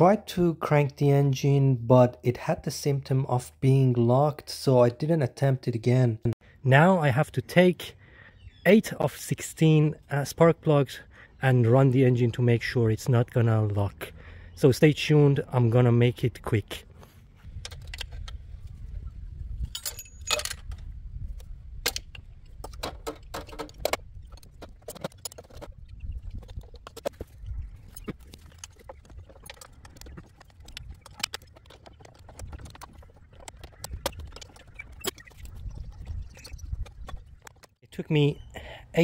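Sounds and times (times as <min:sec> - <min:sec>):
metal tools and plastic parts clinking: 0:17.6 - 0:18.4, 0:19.6 - 0:37.8.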